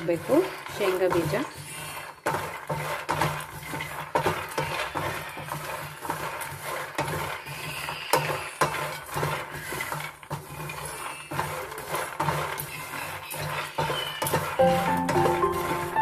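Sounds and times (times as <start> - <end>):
peanuts rattling in pan: 0.0 - 16.0
spatula scraping pan: 0.0 - 16.0.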